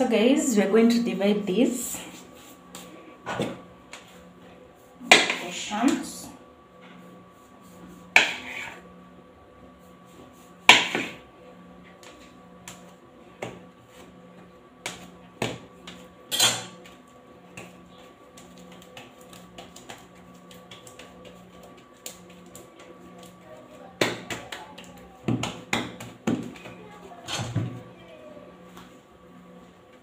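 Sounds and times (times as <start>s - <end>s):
taps and thuds of dough: 5.0s - 6.0s, 10.6s - 11.2s, 14.8s - 16.0s, 16.8s - 26.8s.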